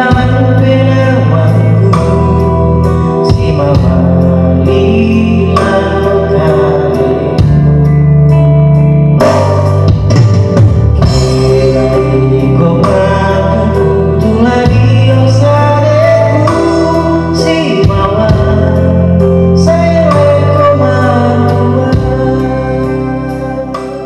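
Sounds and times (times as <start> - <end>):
person singing: 0.0 - 24.0
sustained bass notes: 0.0 - 24.0
drum hits: 9.2 - 11.8.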